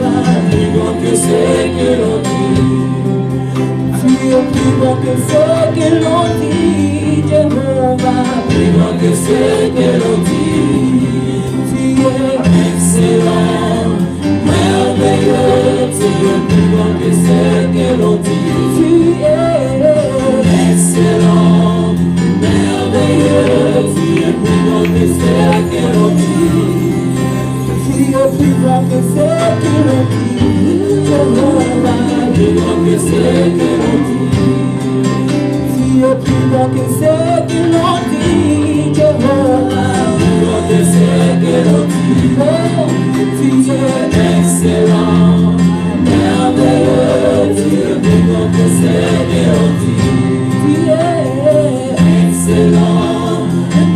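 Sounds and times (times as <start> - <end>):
group singing gospel song: 0.0 - 53.9
steady bass line: 0.0 - 53.9.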